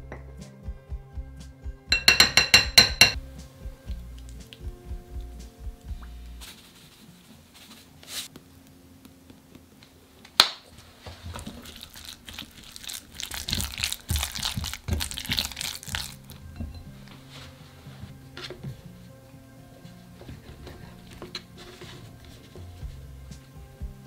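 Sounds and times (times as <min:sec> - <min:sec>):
spatula stirring sticky mixture: 0:10.8 - 0:17.4.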